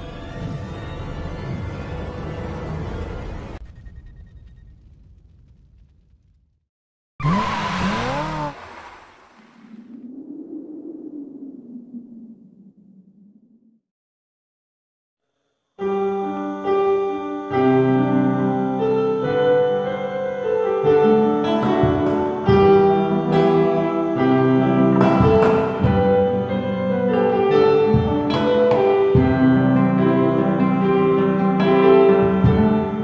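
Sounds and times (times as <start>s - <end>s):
piano-voiced keyboard melody: 15.8s - 33.0s.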